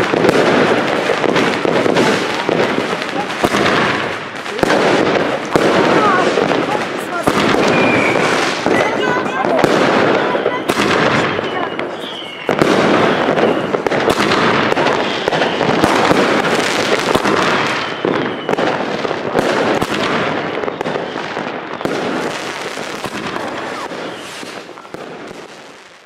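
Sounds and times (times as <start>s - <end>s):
fireworks crackling and banging: 0.0s - 26.0s.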